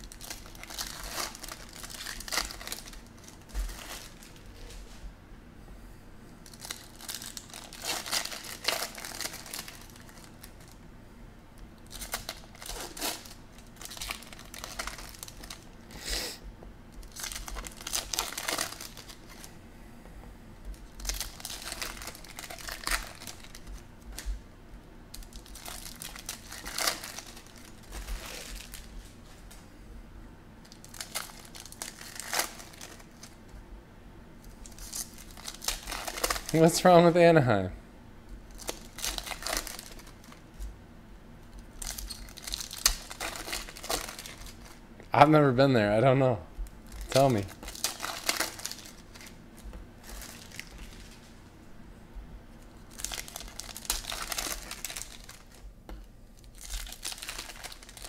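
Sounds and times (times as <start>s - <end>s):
foil wrappers crinkling and tearing: 0.0s - 5.0s, 6.4s - 10.8s, 11.8s - 15.8s, 17.0s - 19.6s, 20.7s - 24.4s, 25.1s - 29.4s, 30.6s - 33.4s, 34.4s - 37.2s, 38.5s - 40.7s, 41.5s - 45.6s, 46.8s - 51.3s, 52.6s - 55.6s, 56.4s - 58.0s.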